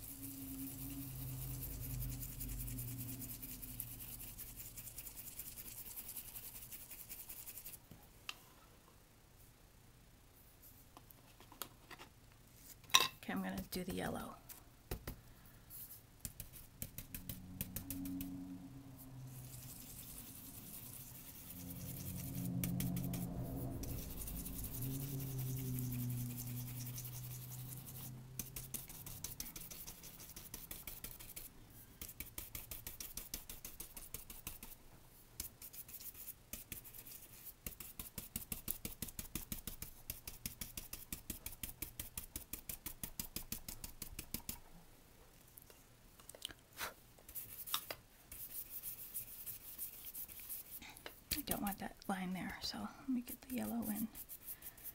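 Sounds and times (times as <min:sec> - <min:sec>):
brush scratching over cardstock: 0:00.0 - 0:07.8, 0:15.7 - 0:34.8, 0:35.4 - 0:44.6, 0:46.8 - 0:51.9, 0:53.2 - 0:54.9.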